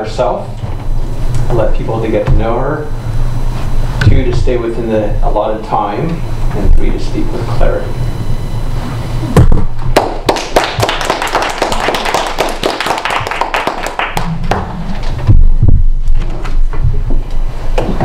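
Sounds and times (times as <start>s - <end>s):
people applauding: 9.9s - 14.8s.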